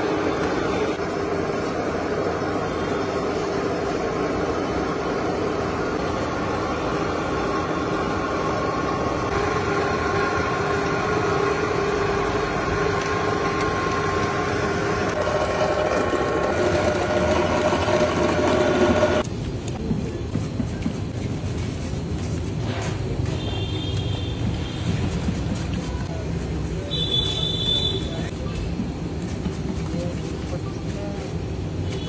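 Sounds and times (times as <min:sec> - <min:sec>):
wet grinder humming: 0:06.6 - 0:19.3.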